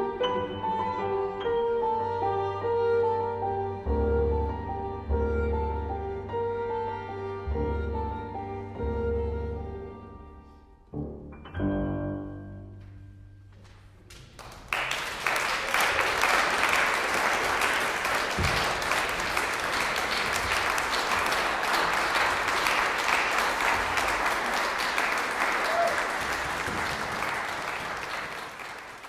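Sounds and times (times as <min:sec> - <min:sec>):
piano and strings chord: 0:00.0 - 0:13.3
audience applause: 0:14.3 - 0:29.0.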